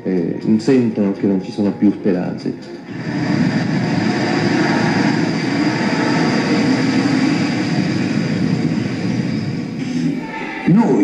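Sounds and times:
street traffic rumble: 0:02.7 - 0:10.6.

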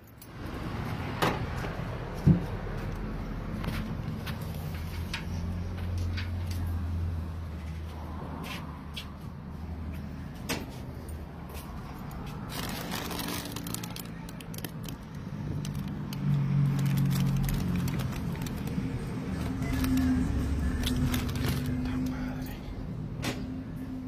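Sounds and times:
plastic bags and foil crinkling: 0:12.3 - 0:22.2.

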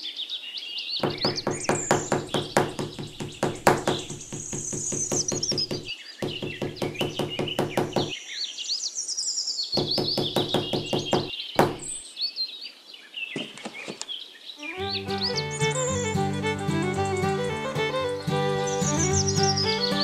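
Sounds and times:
birdsong chirps: 0:00.0 - 0:20.0
small hammer tapping sticks: 0:01.0 - 0:08.1.

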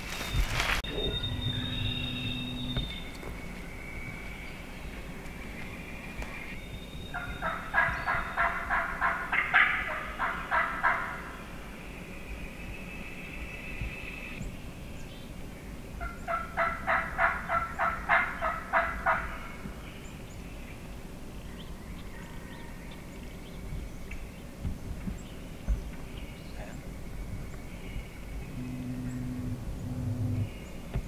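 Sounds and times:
turkey gobbling: 0:07.1 - 0:11.3, 0:16.0 - 0:19.3.

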